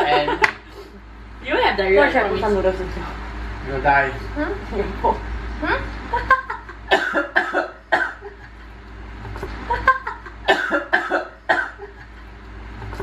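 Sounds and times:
person coughing: 6.9 - 8.2, 10.4 - 12.0.

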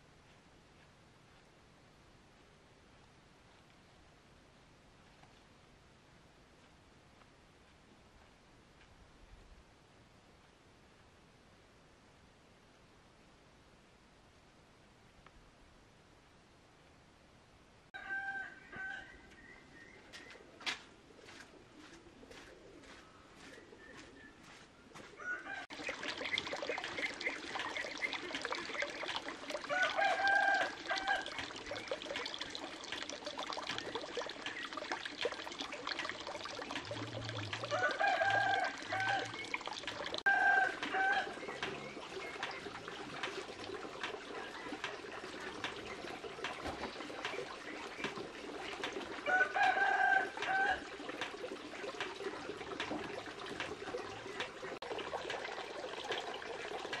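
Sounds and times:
rooster crowing: 18.0 - 19.2, 25.2 - 25.7, 29.7 - 31.3, 37.7 - 39.3, 40.3 - 41.3, 49.2 - 50.8.

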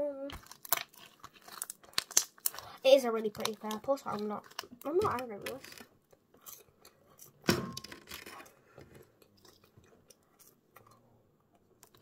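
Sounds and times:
crunchy chewing: 0.4 - 4.9, 5.6 - 7.4.

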